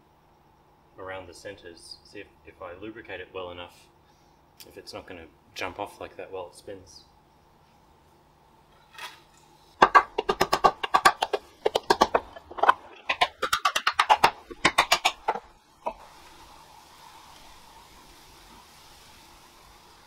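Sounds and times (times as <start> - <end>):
wax rubbing on wood: 9.8 - 15.5.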